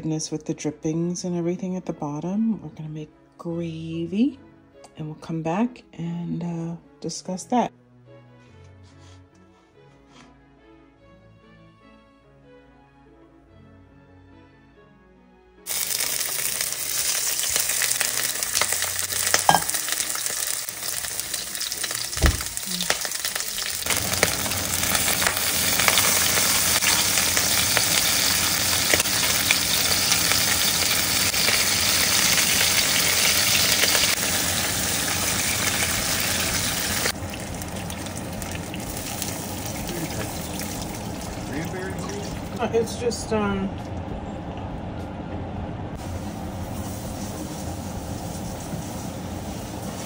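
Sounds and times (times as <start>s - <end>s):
meat sizzling in oil: 15.7s - 42.5s, 46.0s - 50.0s.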